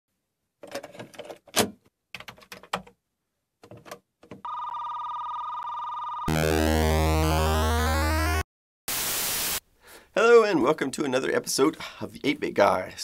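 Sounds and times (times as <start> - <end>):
high electronic beeping tone: 4.5 - 8.4.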